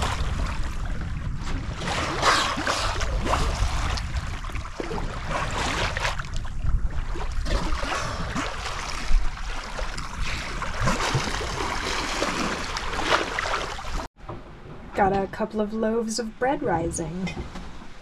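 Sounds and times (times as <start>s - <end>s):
wind buffeting microphone: 0.0s - 11.8s
water rushing along a hull: 0.0s - 15.6s.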